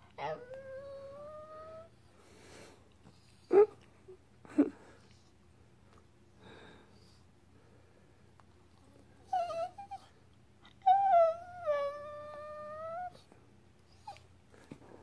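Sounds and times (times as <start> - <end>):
dog whining: 0.2 - 1.9, 9.2 - 13.3, 13.9 - 14.3.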